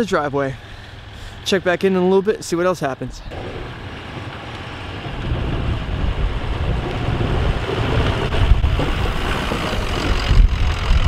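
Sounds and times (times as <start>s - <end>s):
truck engine running under load: 0.0s - 11.0s
plow blade shoving through snow: 3.3s - 11.0s
wind rumbling on microphone: 3.3s - 11.0s.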